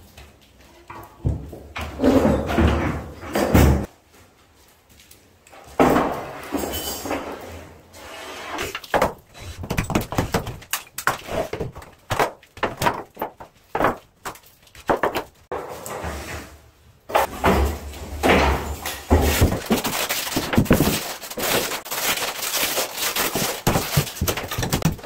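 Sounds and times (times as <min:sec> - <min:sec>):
demolition knocks and clatter: 0:08.8 - 0:15.5, 0:17.1 - 0:25.0.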